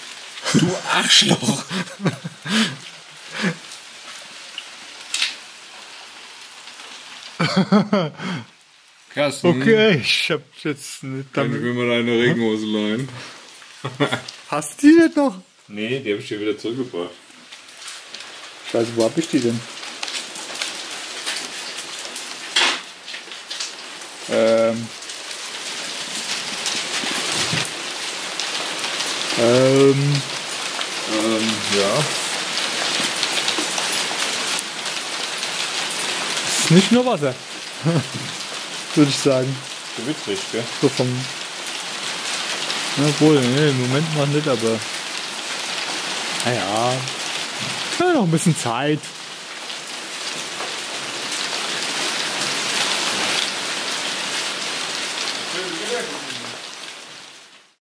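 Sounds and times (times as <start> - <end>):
steady rain falling: 0.0 - 57.8
person's voice: 0.4 - 3.6, 9.2 - 13.2, 13.8 - 17.2, 18.7 - 19.7, 24.3 - 24.9, 29.3 - 30.3, 31.0 - 32.4, 36.5 - 41.3, 42.9 - 44.9, 46.4 - 49.2, 55.5 - 56.6.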